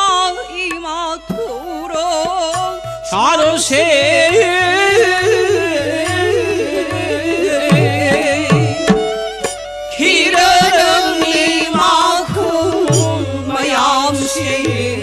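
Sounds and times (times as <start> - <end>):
harmonium: 0.0 - 15.0
person singing devotional song: 0.0 - 15.0
hand drum strokes: 6.0 - 13.7.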